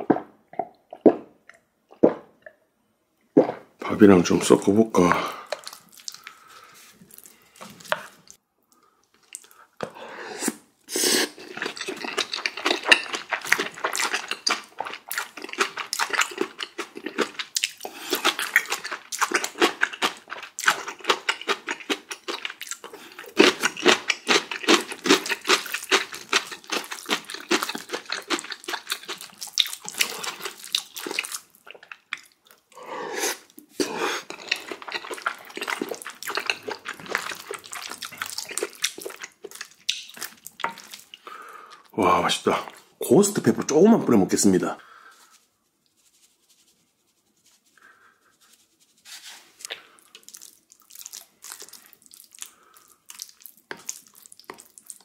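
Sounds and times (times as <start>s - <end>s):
spoon stirring thick curry: 11.4s - 17.5s.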